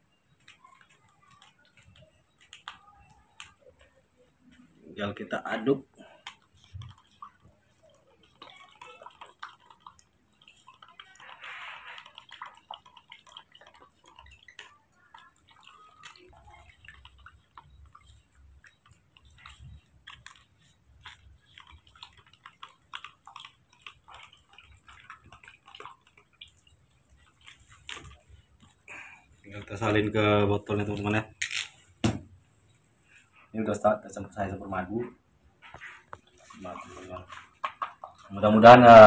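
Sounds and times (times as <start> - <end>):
spoon stirring in plastic cup: 0.2 - 32.1, 35.6 - 39.0
monkey sucking on fingers: 6.0 - 29.3.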